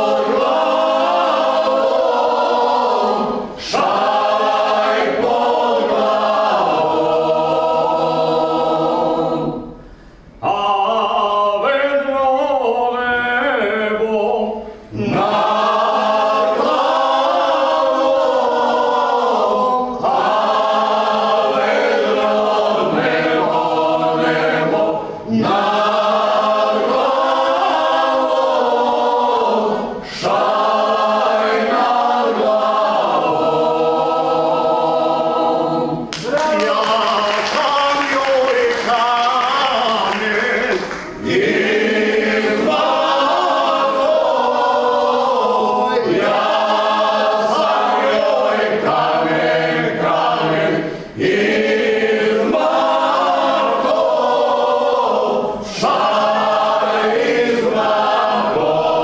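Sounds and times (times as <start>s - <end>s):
vocal group singing in harmony: 0.0s - 59.0s
singers breathing: 9.7s - 10.4s, 50.8s - 51.2s.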